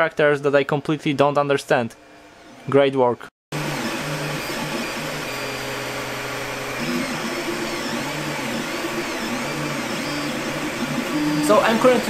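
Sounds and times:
stepper motors whining: 0:03.5 - 0:12.0
cooling fans whirring: 0:03.6 - 0:12.0.

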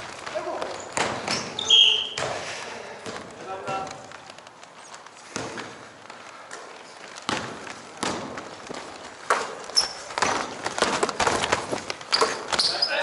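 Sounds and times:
thuds on a wooden court: 0:00.0 - 0:04.5, 0:05.2 - 0:05.9, 0:07.1 - 0:12.8
sneaker squeak: 0:00.6 - 0:02.4, 0:09.6 - 0:10.7, 0:12.1 - 0:13.0.

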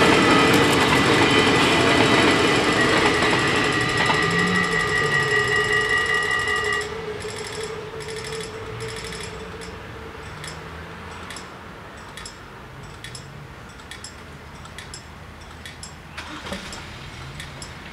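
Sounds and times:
level crossing bells ringing: 0:00.0 - 0:17.8
slow steady tick: 0:07.2 - 0:16.0, 0:17.4 - 0:17.9.

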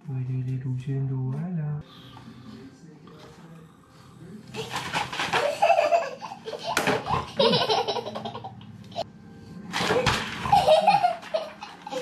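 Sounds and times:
toddler girl laughing: 0:04.6 - 0:09.0, 0:10.4 - 0:12.0.

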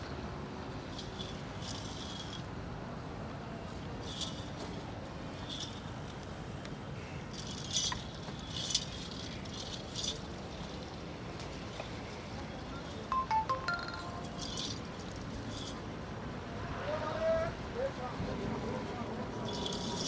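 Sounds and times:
steady background noise: 0:00.0 - 0:20.0
metal anklets jingling: 0:00.9 - 0:02.5, 0:04.0 - 0:04.8, 0:05.4 - 0:05.9, 0:07.3 - 0:11.0, 0:12.8 - 0:15.8, 0:19.4 - 0:20.0.

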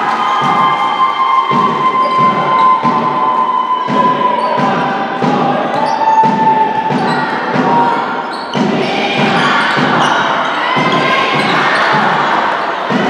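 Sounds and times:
crowd noise: 0:00.0 - 0:13.0
basketball bouncing on wooden court: 0:03.9 - 0:12.3.

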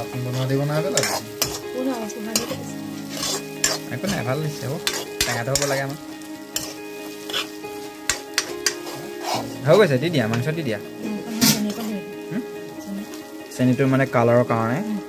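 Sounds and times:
vegetables sizzling in oil: 0:00.0 - 0:15.0
spatula scraping an iron pan: 0:00.3 - 0:09.6, 0:11.3 - 0:11.9.

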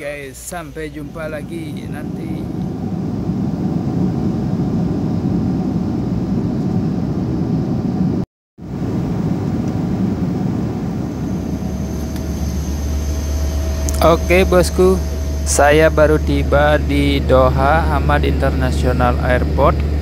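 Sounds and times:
jet airliner cabin rumble: 0:00.0 - 0:20.0
steady low hum: 0:00.0 - 0:20.0
faint thin tone: 0:11.1 - 0:17.5.

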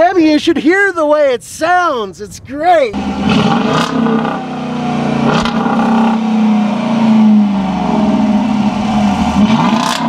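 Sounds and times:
car engine revving: 0:03.0 - 0:10.0.

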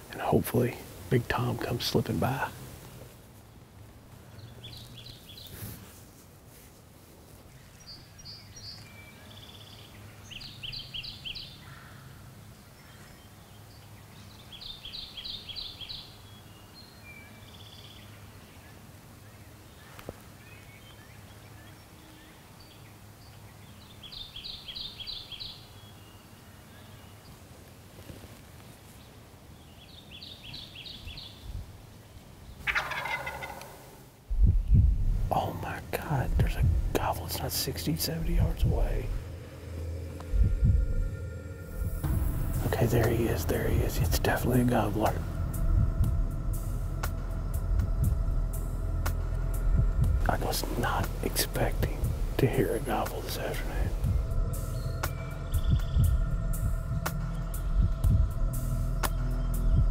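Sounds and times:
turkey gobbling: 0:32.6 - 0:34.0.

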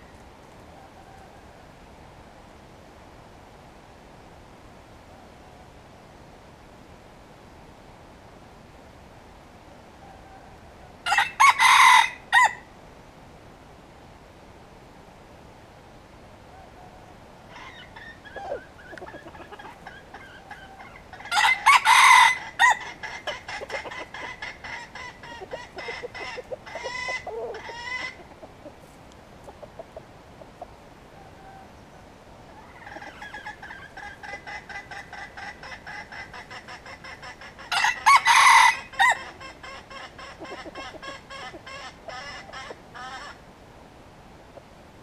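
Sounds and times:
rooster crowing: 0:10.0 - 0:12.7, 0:20.2 - 0:23.0, 0:37.7 - 0:39.4
rapid clucking calls: 0:17.5 - 0:31.3, 0:32.6 - 0:43.4.

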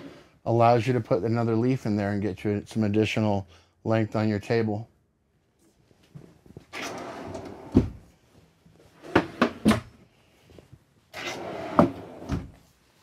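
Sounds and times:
table top sliding on rails: 0:06.7 - 0:07.9, 0:11.2 - 0:12.5
drawer sliding shut with thumps: 0:06.8 - 0:08.0, 0:11.2 - 0:12.6.

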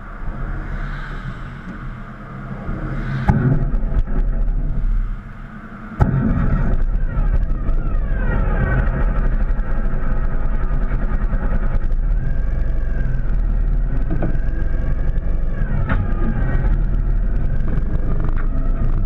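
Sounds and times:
wind rumble on microphone: 0:00.0 - 0:19.0
motorcycle engine running: 0:06.0 - 0:19.0.

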